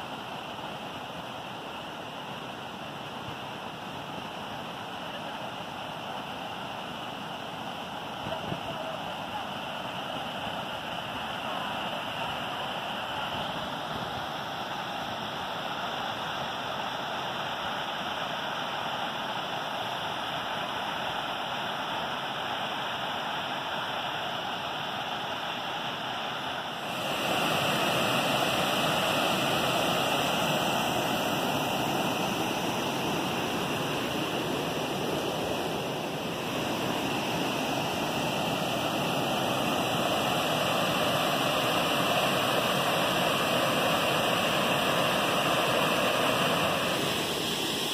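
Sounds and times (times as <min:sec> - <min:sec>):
water rushing over rock: 0:26.0 - 0:47.9
waterfall pouring into pool: 0:26.8 - 0:34.4, 0:36.5 - 0:47.9.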